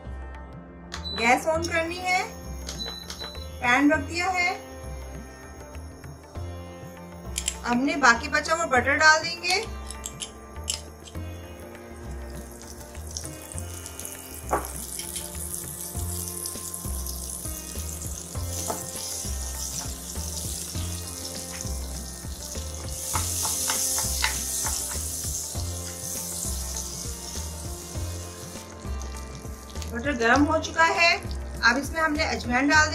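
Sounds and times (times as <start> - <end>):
butter sizzling in a pan: 9.6 - 32.1.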